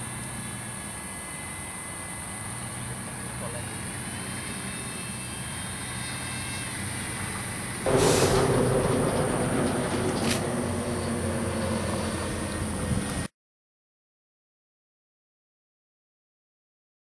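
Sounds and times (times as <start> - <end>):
model plane propeller buzzing: 0.6 - 7.8.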